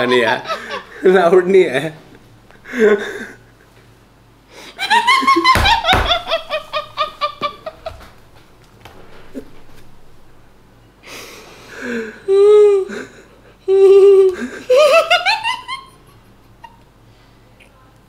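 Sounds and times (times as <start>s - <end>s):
muffled hums: 0.0s - 18.0s
woman stifling laughter: 4.8s - 8.1s, 13.7s - 16.8s.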